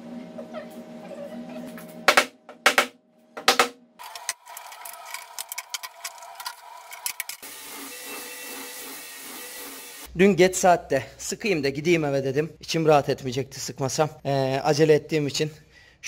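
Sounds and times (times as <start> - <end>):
loud knocks: 2.1 - 3.8
metal clamps clicking and rattling: 4.0 - 7.4.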